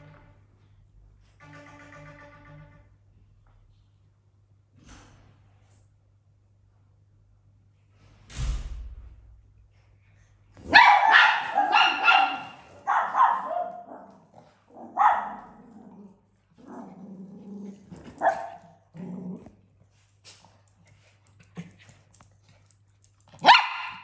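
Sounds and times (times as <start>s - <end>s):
small dog barking: 10.6s - 15.6s, 18.2s - 18.8s, 23.4s - 24.0s.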